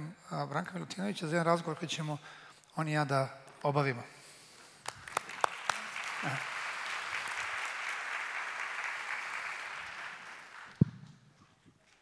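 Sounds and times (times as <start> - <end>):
audience applauding: 4.8 - 11.2.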